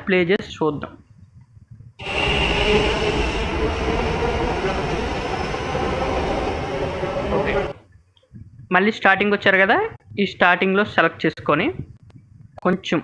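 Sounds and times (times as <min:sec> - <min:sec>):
metro train running: 0:02.0 - 0:07.8.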